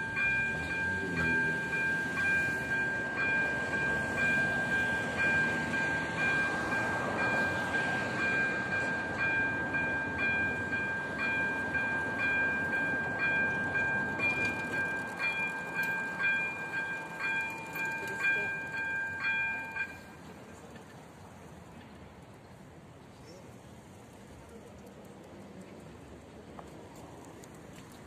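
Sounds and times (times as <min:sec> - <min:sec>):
level crossing warning bell: 0:00.0 - 0:20.5.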